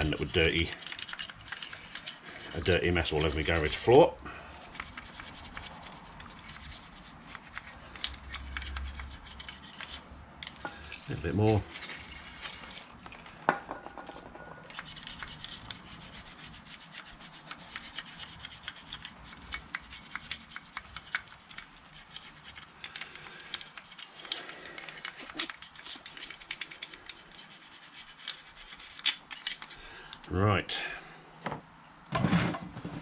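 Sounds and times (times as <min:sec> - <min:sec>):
toothbrush scrubbing metal: 0:00.0 - 0:10.1, 0:11.1 - 0:13.0, 0:14.6 - 0:29.8.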